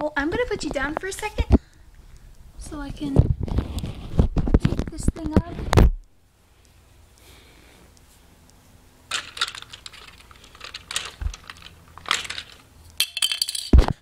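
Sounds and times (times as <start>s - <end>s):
plastic toy parts rattling: 9.1s - 14.0s.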